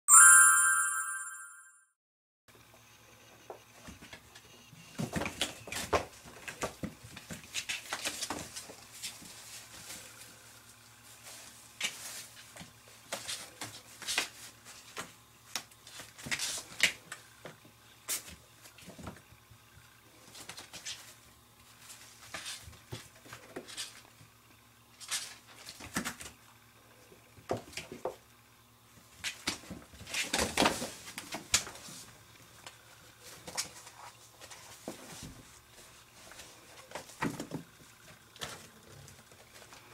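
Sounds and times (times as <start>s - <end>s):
kittens scrabbling on cardboard: 5.0s - 10.0s, 29.2s - 32.1s, 36.3s - 37.7s.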